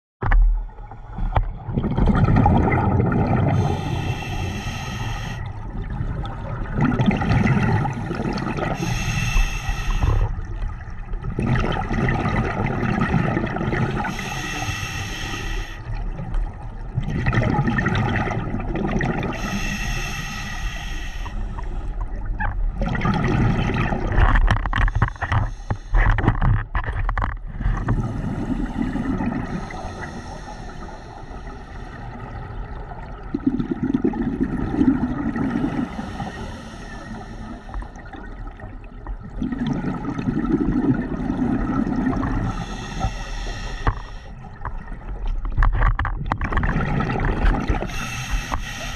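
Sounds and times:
exhaled bubbles rumbling: 0.2s - 48.9s
sharp crackling bubbles: 1.3s - 48.9s
regulator hissing inhalation: 3.6s - 5.5s, 8.8s - 10.3s, 14.0s - 15.9s, 19.4s - 21.7s, 29.5s - 32.0s, 42.5s - 44.3s, 47.9s - 48.9s.

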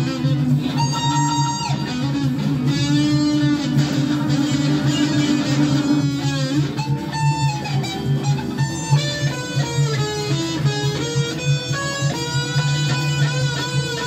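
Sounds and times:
electric guitar riff: 0.0s - 14.0s.

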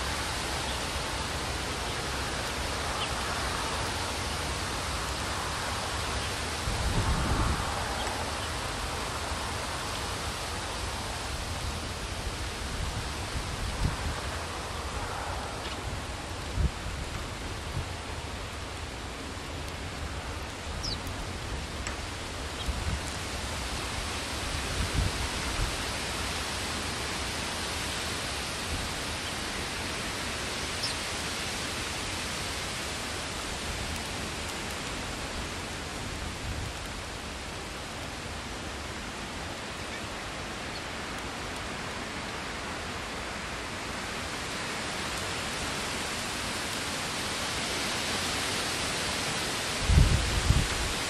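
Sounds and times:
wind hissing through trees: 0.0s - 51.0s
wind buffeting microphone: 2.2s - 9.5s, 49.7s - 51.0s.

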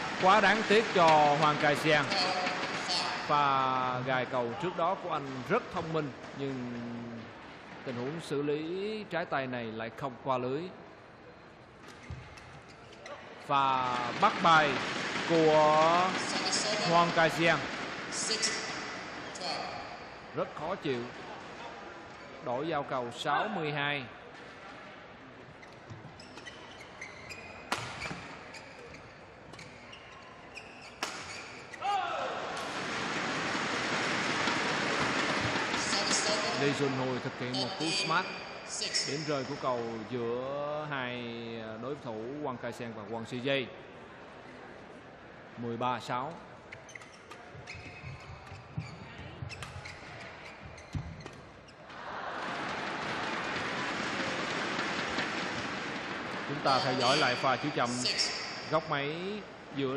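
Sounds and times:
shoes squeaking on court: 0.0s - 3.3s, 11.6s - 20.2s, 24.3s - 31.9s, 46.3s - 58.9s
rackets striking shuttlecock: 30.9s - 31.8s
crowd cheering and applause: 51.9s - 57.4s.

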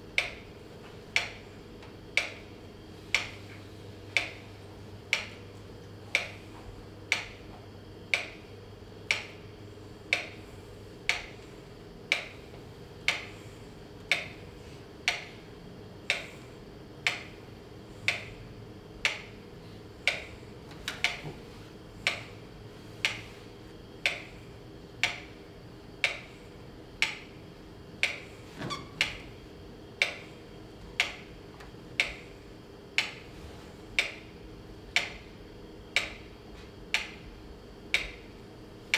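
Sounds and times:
steady ticking: 9.1s - 9.4s, 14.0s - 14.4s, 20.0s - 20.3s, 22.0s - 22.4s, 34.0s - 36.3s.

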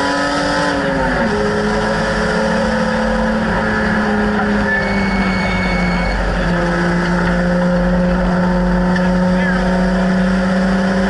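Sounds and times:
race car engine from inside cabin: 0.0s - 11.0s
wind and road noise: 0.0s - 11.0s.

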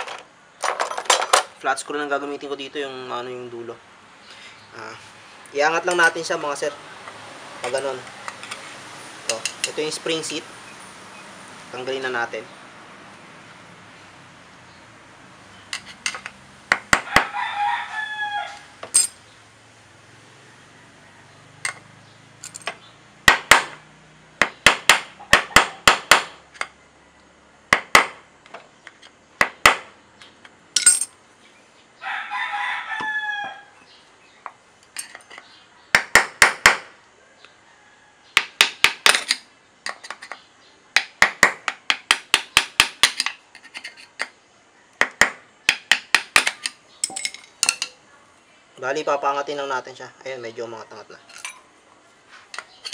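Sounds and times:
rooster crowing: 17.0s - 19.0s, 20.1s - 21.8s, 32.0s - 33.8s, 37.2s - 38.4s.

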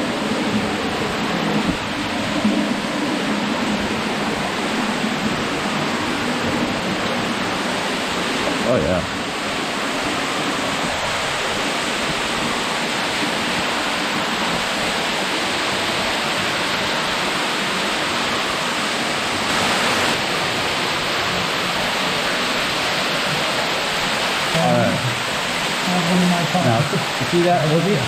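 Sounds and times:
waterfall pouring into a pool: 0.0s - 28.0s.

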